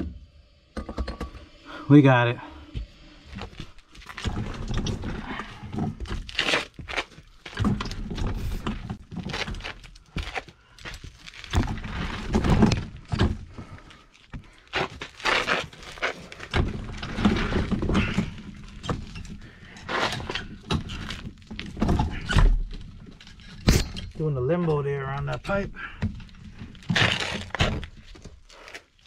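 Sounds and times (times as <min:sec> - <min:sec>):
person crawling on dirt: 0:02.7 - 0:12.5, 0:13.4 - 0:16.5.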